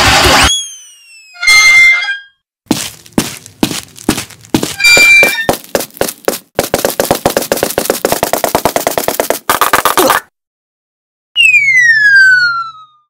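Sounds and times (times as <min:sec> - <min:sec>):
brief squeaky tone: 0:00.4 - 0:02.4
cartoon sharp taps: 0:04.9 - 0:10.3.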